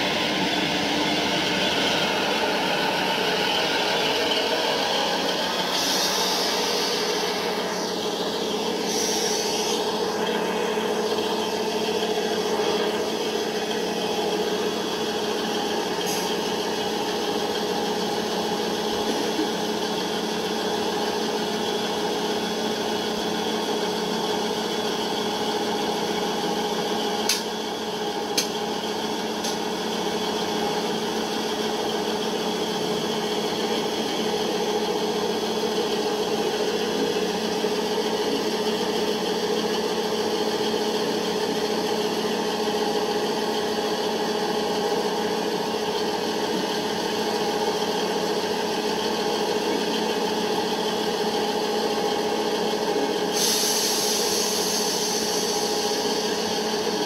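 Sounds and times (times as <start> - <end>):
model train humming: 0.0 - 57.0.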